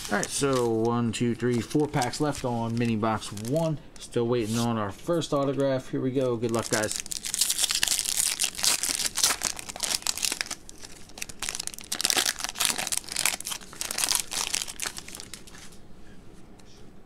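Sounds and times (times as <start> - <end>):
foil wrapper crinkling and tearing: 0.0 - 3.7, 6.4 - 15.7.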